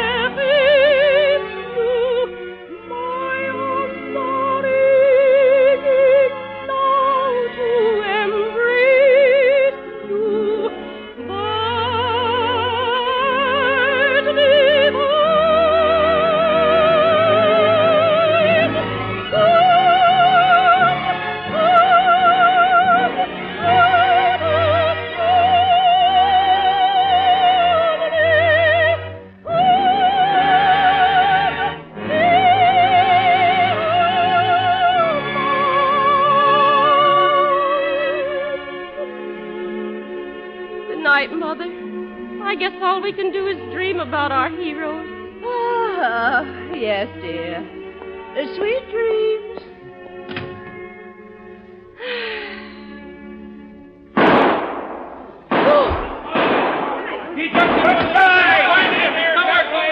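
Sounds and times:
operatic soprano singing: 0:00.0 - 0:39.3, 0:42.4 - 0:49.8
orchestra playing: 0:00.0 - 0:59.9.

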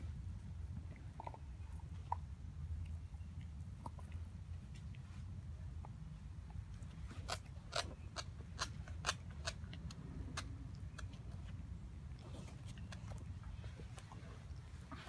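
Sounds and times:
low background rumble: 0:00.0 - 0:15.0
dog gnawing bone: 0:00.4 - 0:05.0, 0:05.7 - 0:15.0.

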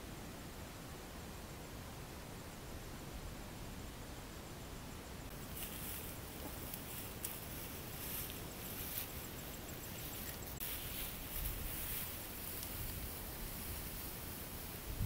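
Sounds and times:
grass rustling underfoot: 0:05.3 - 0:15.0.

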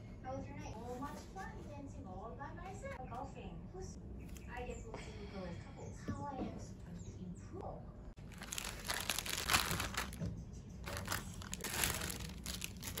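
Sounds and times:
plastic bag crinkling: 0:08.2 - 0:13.0.

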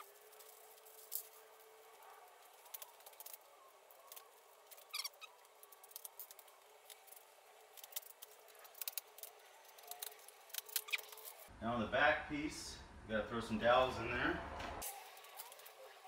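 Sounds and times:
squeaky scrape: 0:04.0 - 0:06.5, 0:07.8 - 0:11.5.

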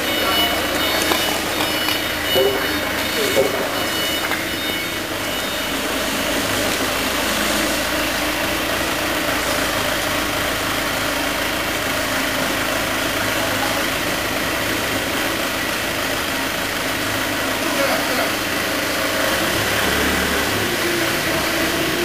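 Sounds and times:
forklift engine idling: 0:00.0 - 0:22.0.

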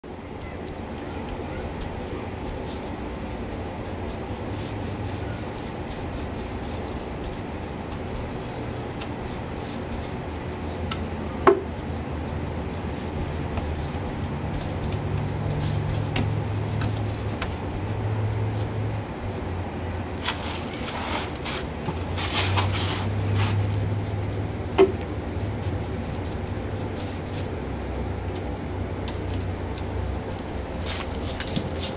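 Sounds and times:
paintbrush strokes: 0:00.1 - 0:10.4, 0:12.2 - 0:24.6, 0:25.2 - 0:27.7, 0:29.1 - 0:31.9.

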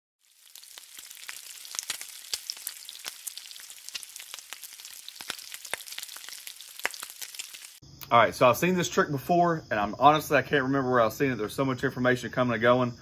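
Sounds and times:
food sizzling on griddle: 0:00.2 - 0:07.8
crackling pops: 0:00.3 - 0:07.8.

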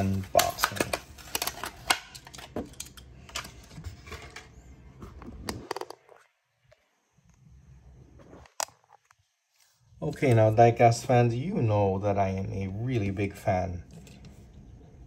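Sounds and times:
plastic blister pack crackling: 0:00.0 - 0:03.9
faint hum: 0:00.0 - 0:15.0.

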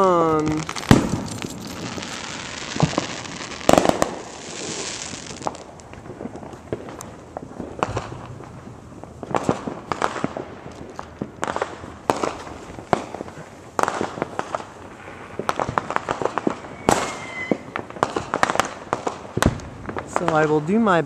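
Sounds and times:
firecrackers banging and crackling: 0:00.0 - 0:21.0
firework whistle: 0:16.2 - 0:17.8.

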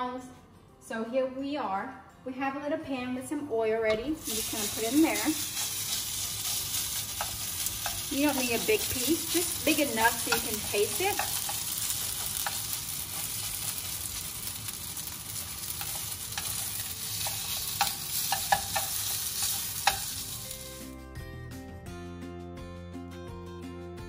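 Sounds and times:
background music: 0:00.0 - 0:14.5, 0:15.4 - 0:24.0
meat sizzling in hot oil: 0:04.2 - 0:20.9
chopsticks clicking against a pan: 0:05.6 - 0:15.1, 0:15.7 - 0:20.1.

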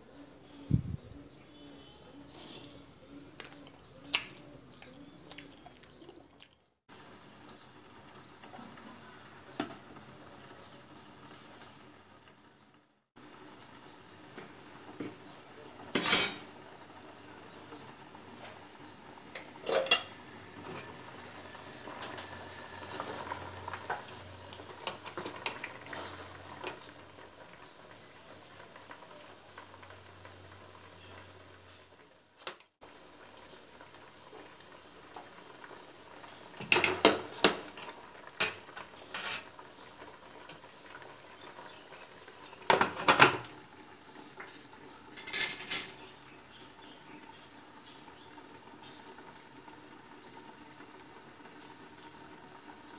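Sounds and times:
soft pouring and scraping: 0:02.1 - 0:03.8.

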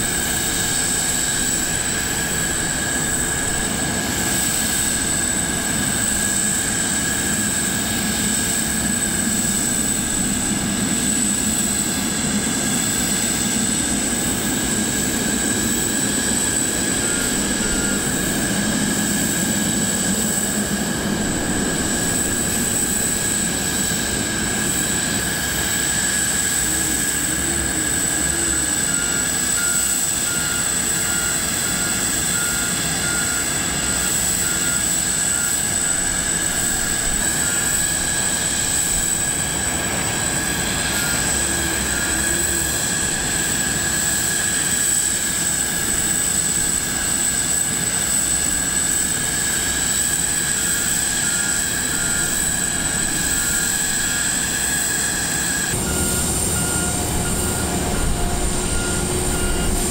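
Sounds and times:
jet high-pitched whine: 0:00.0 - 0:59.9
short warning beeps: 0:28.2 - 0:37.8, 0:55.8 - 0:59.9.

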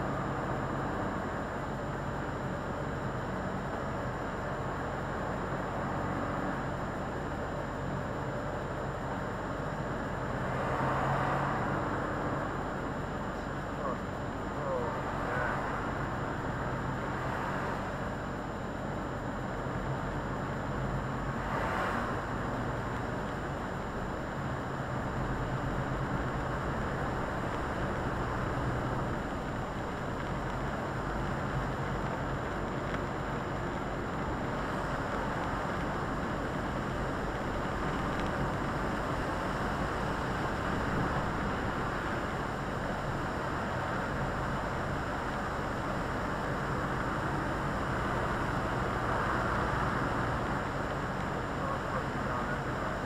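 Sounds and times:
diesel engine drone: 0:00.0 - 0:53.0
tyre noise on wet road: 0:21.2 - 0:53.0.

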